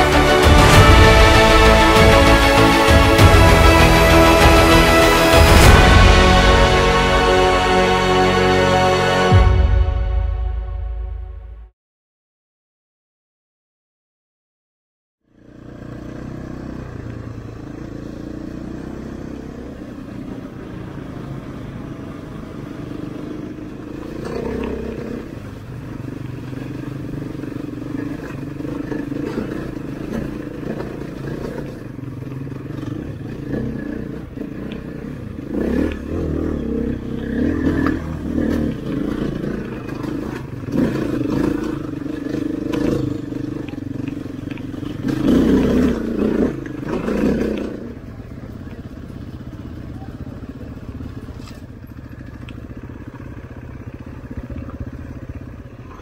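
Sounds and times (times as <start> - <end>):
motorcycle engine running: 15.2 - 56.0.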